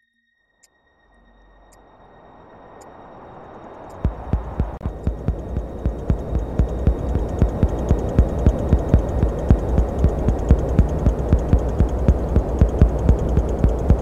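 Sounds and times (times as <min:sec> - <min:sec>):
steady low hum: 0:03.9 - 0:14.0
rapid bass pulses: 0:04.1 - 0:14.0.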